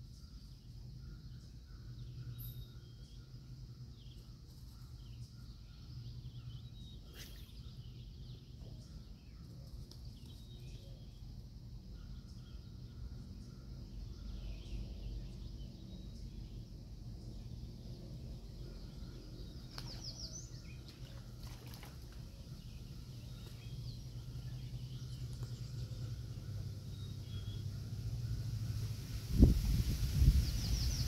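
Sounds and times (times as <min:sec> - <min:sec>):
bird chirps: 0:00.0 - 0:11.3
low steady rumble: 0:07.6 - 0:31.0.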